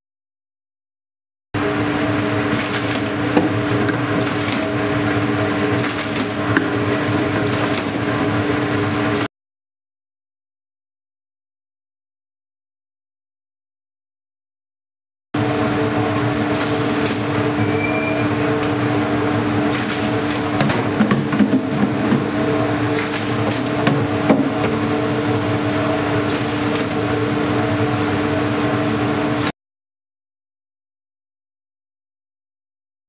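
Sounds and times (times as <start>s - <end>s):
machine humming with held tones: 15.4s - 20.6s, 22.2s - 29.5s
clicks and knocks of jugs: 20.6s - 22.3s.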